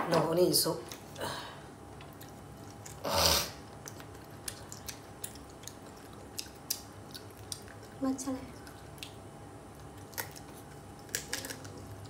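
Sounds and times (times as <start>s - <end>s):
wet chewing clicks and smacks: 2.0s - 3.0s, 3.7s - 12.0s.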